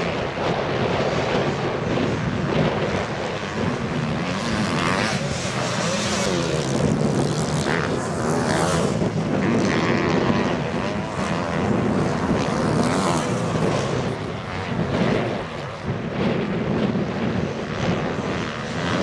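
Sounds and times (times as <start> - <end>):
motocross bike engines revving: 2.1 - 15.6.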